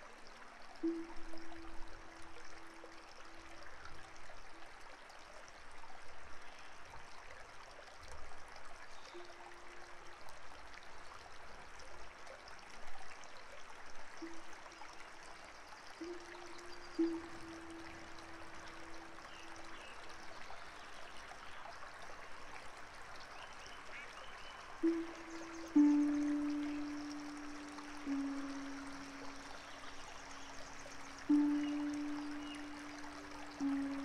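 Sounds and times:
stream water rushing: 14.2 - 34.0.

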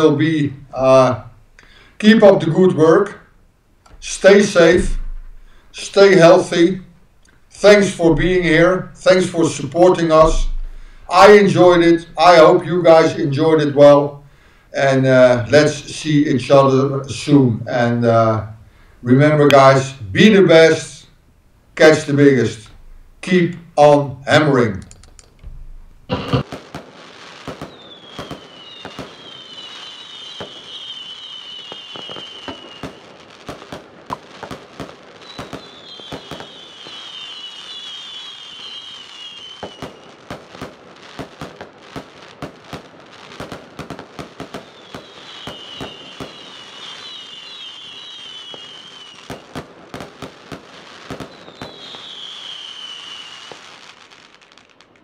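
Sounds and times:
fireworks bangs and crackles: 3.9 - 21.0, 25.4 - 55.0
descending firework whistles: 26.4 - 54.8.

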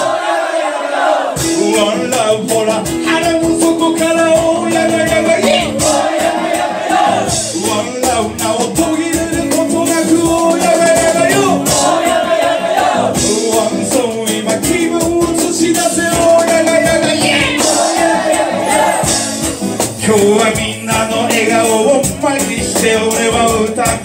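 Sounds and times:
drums: 0.0 - 24.0
man singing into microphone: 1.4 - 6.2, 7.2 - 19.2, 19.8 - 24.0
strummed acoustic guitar: 1.4 - 24.0.

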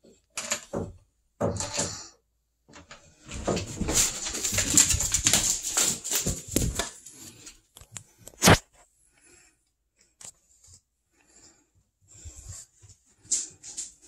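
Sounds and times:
rustling and scraping: 2.7 - 9.0, 10.1 - 14.0.

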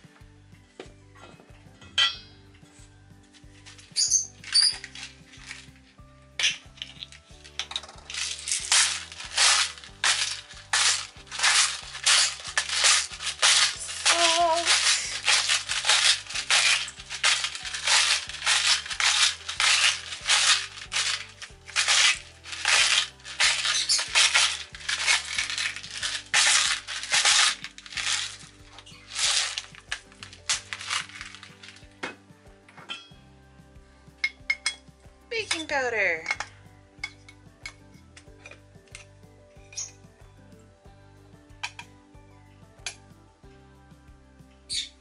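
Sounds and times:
soft background music: 0.0 - 45.0
salt grinder rasping crunches: 8.0 - 31.9.

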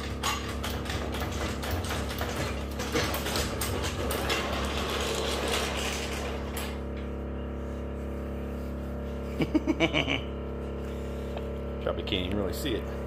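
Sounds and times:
floor jack clicking and rattling: 0.0 - 6.8.

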